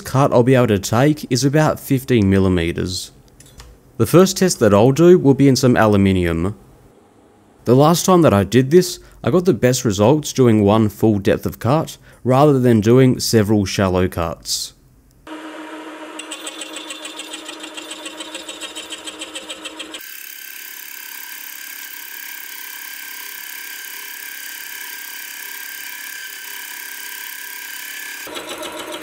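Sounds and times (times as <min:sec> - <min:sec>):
mill motor running: 0:15.3 - 0:29.0
saw cutting aluminium: 0:15.3 - 0:29.0.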